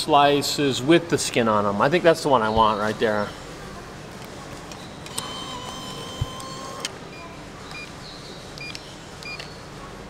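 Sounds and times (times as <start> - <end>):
bill acceptor motor whir: 5.0 - 7.0
short keypad beeps: 5.1 - 8.0
click: 8.6 - 9.5.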